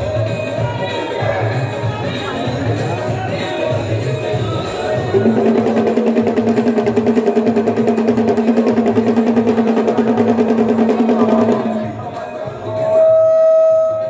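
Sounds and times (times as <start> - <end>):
rapid drum roll: 4.9 - 12.0.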